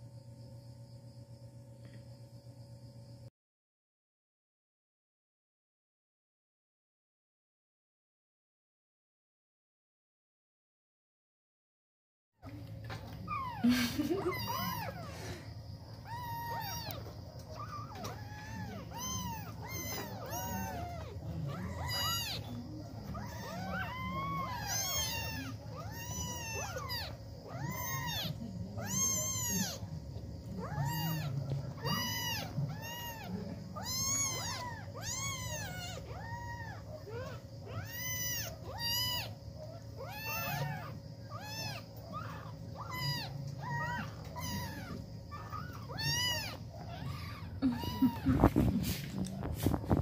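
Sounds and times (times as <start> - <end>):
kittens mewing: 12.4 - 50.0.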